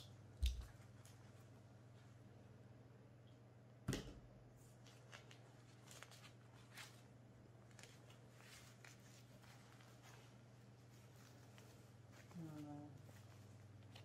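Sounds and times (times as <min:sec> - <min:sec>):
low steady hum: 0:00.0 - 0:14.0
diaper crinkling and rustling: 0:04.7 - 0:14.0.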